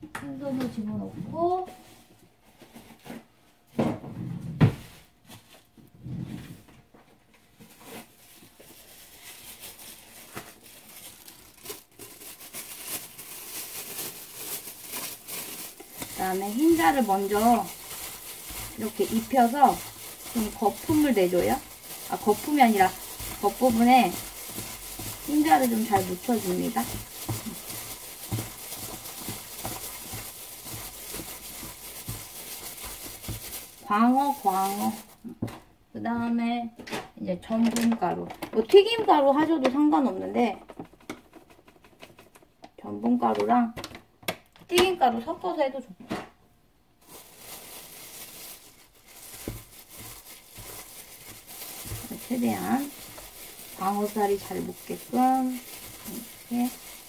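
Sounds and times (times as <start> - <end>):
plastic glove crinkling: 7.2 - 35.6, 47.0 - 57.0
wet squishing of fish in bowl: 8.0 - 35.3, 47.0 - 57.0.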